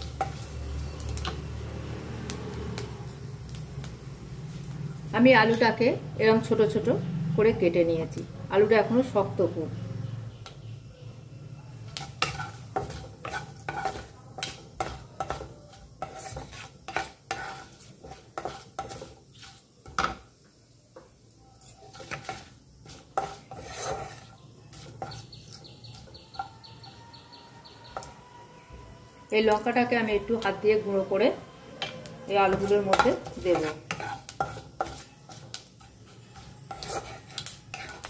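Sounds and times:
wooden spatula scraping a pan: 0.0 - 1.4, 11.9 - 20.2, 21.0 - 26.8, 31.8 - 38.0
spices sizzling in oil: 0.0 - 38.0.

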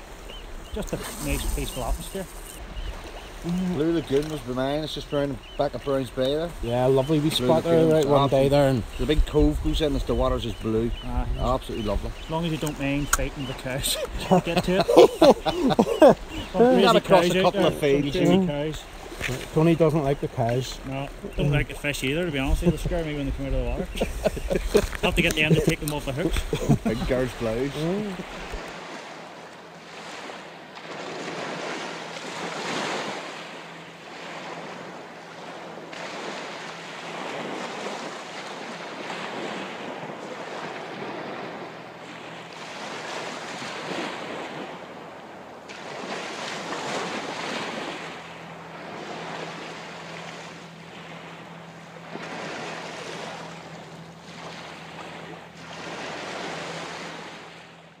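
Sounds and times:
faint steady low hum: 0.4 - 28.8
waves washing on rocky shore: 12.3 - 20.0.

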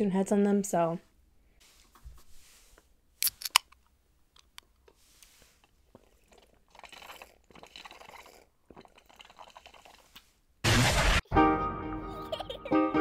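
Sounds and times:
sipping and swallowing: 5.4 - 10.4.

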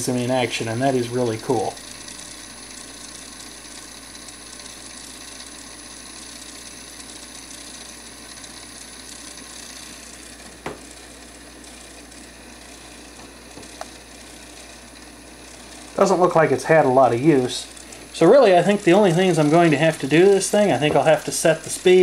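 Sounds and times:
cassette mechanism running: 0.0 - 22.0.

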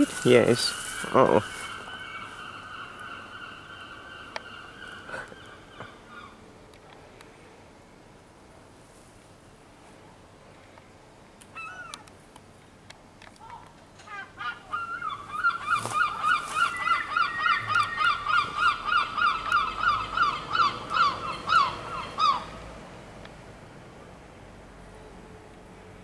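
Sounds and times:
bird calling: 0.0 - 6.4, 11.5 - 12.1, 13.4 - 22.6.

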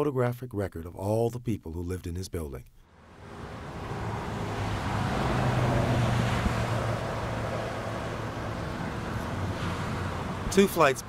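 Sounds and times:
highway traffic rushing: 2.9 - 11.0
low engine drone: 3.0 - 10.5.

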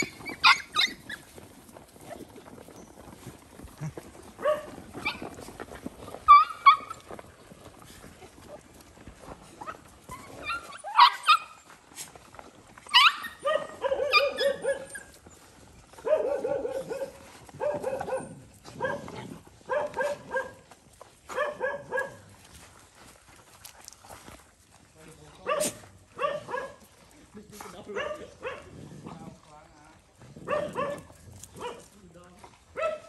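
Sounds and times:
dogs yelping and barking: 0.0 - 2.8, 4.4 - 7.2, 9.4 - 11.8, 12.8 - 20.7, 21.3 - 22.3, 25.5 - 26.9, 30.3 - 31.8.

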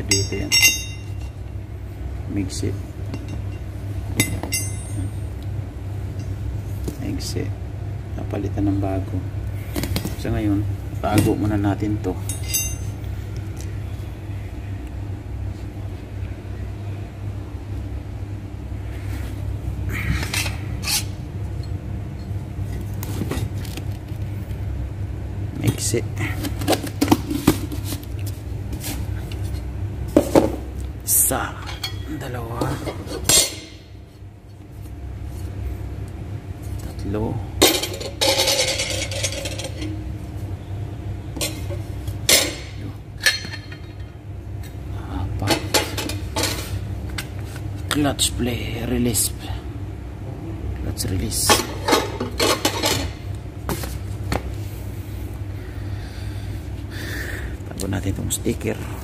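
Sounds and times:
steady low hum: 0.0 - 59.0
metal parts clinking: 12.3 - 13.0, 37.6 - 39.9.

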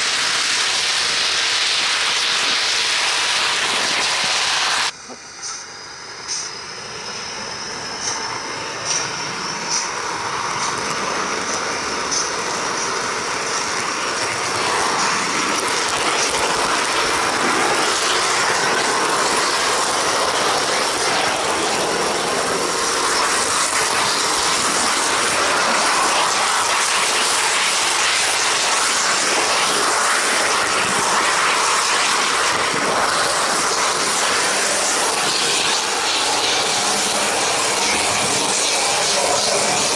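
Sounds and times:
model train rolling rattle: 8.0 - 39.9.

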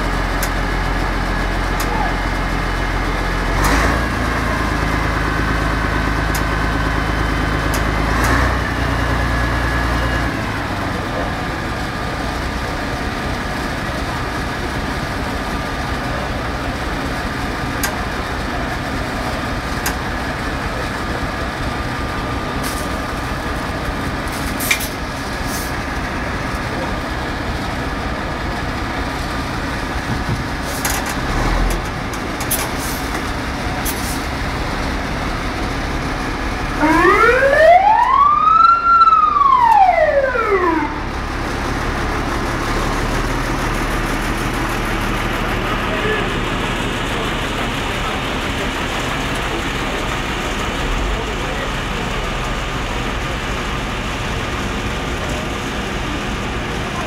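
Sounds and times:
diesel engines running: 0.0 - 57.0
indistinct voices: 39.9 - 57.0.

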